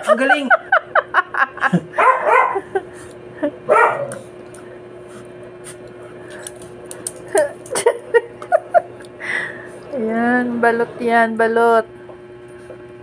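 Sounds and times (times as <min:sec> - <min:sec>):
dog vocal sounds: 0:03.7 - 0:04.3.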